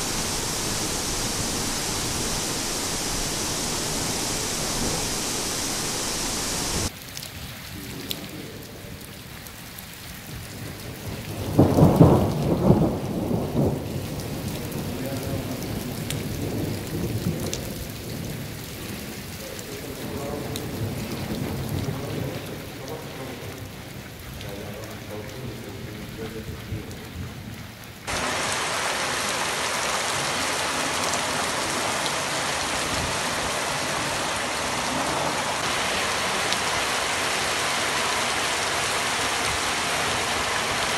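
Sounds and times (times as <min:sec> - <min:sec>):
downpour on a street: 0:00.0 - 0:40.9
heavy rain falling: 0:00.0 - 0:40.9
low rumble of thunder: 0:10.7 - 0:19.1.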